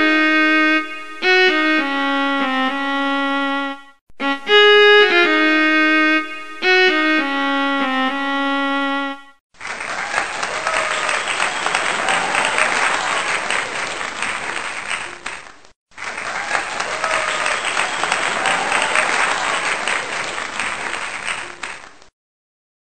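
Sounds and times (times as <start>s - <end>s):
crowd applauding: 9.6s - 22.1s.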